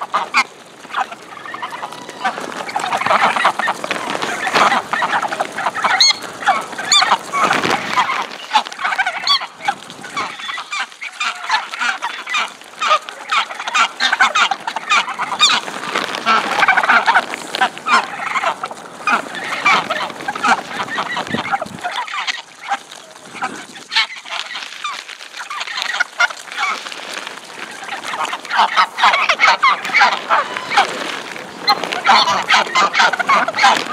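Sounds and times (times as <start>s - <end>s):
geese honking: 0.0s - 33.9s
bills pecking on pavement: 0.1s - 33.9s.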